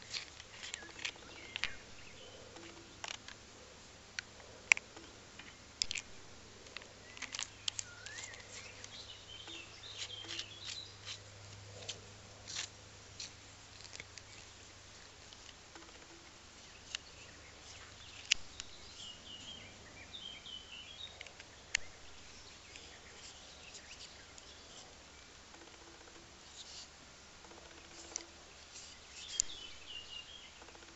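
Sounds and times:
faint bird chirps: 6.8s - 11.9s, 15.7s - 26.9s, 27.5s - 30.9s.

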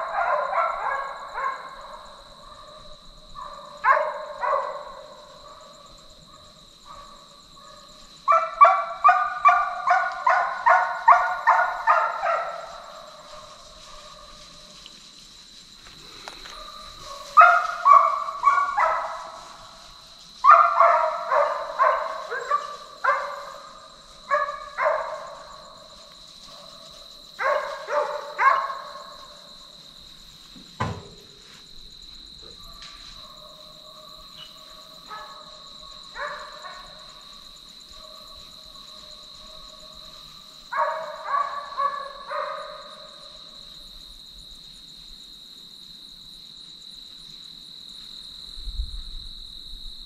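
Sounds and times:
dogs barking and baying: 0.0s - 14.8s, 15.8s - 29.8s, 32.4s - 43.6s.

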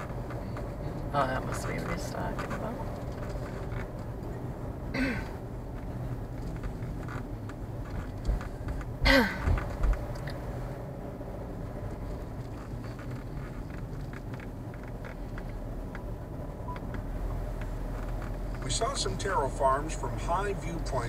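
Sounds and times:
car engine and road noise: 0.0s - 21.0s.

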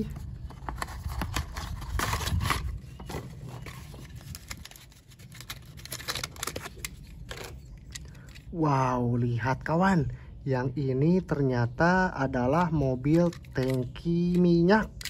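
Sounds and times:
packaging rustling and crinkling: 0.0s - 8.5s.

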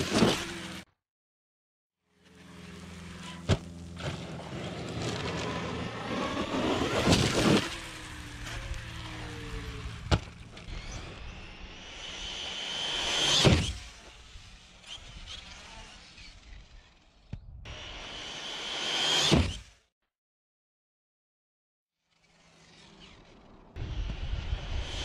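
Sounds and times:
toy car speeding past: 0.0s - 0.8s, 2.2s - 19.8s, 22.2s - 25.0s
electric motor whining: 2.3s - 16.8s.

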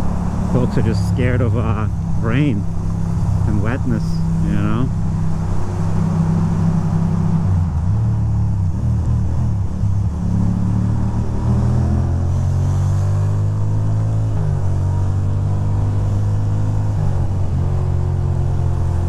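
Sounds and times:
road and wind hiss: 0.0s - 19.0s.

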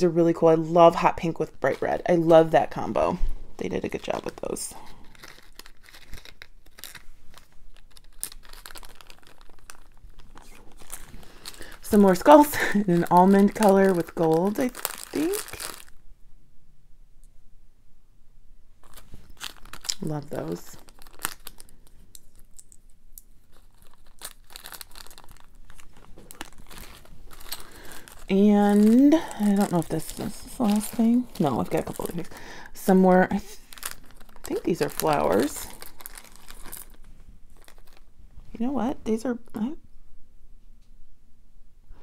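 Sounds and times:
plastic bag crinkling: 3.6s - 16.0s, 18.8s - 38.6s.

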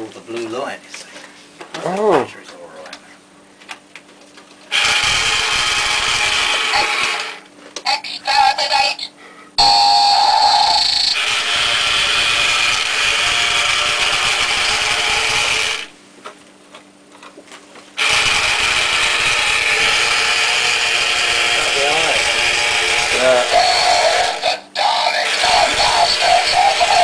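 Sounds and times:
toy motor whirring: 4.7s - 8.9s, 10.2s - 15.9s, 18.0s - 27.0s
brief electronic tones: 9.6s - 11.2s.

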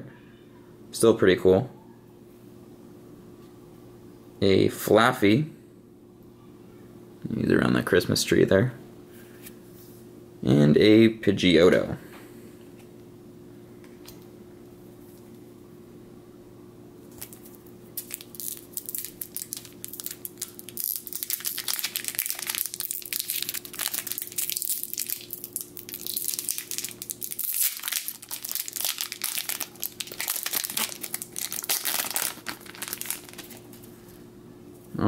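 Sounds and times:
foil wrapper crinkling and tearing: 17.1s - 33.9s.

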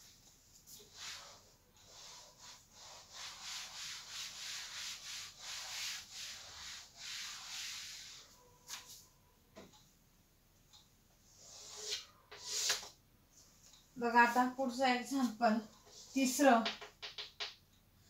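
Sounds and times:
cloth rubbing on chalkboard: 0.7s - 9.0s.

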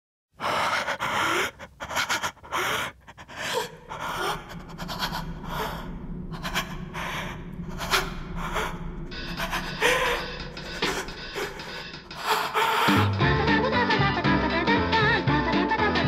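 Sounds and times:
person gasping and panting: 0.4s - 13.2s
low steady drone: 0.4s - 13.4s.

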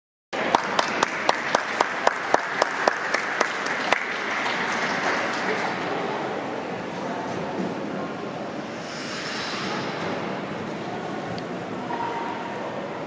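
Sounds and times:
audience applauding: 0.4s - 5.9s.

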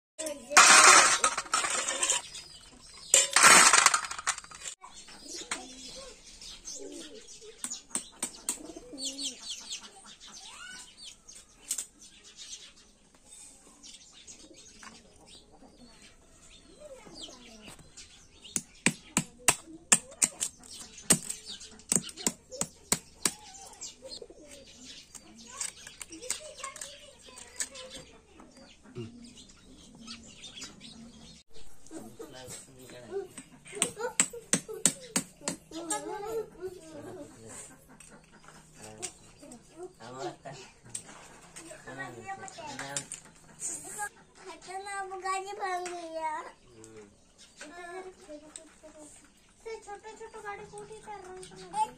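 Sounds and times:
loud rustling: 0.5s - 2.4s, 3.1s - 4.8s.

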